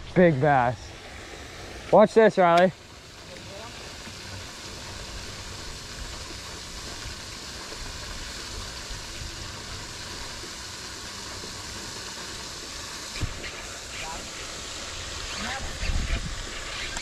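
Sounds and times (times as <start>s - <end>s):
steady hiss: 0.0s - 17.0s
wind buffeting microphone: 15.4s - 16.7s.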